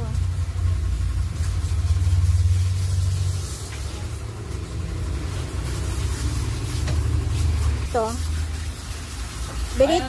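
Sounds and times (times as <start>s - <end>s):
motor rumbling: 0.0s - 8.0s.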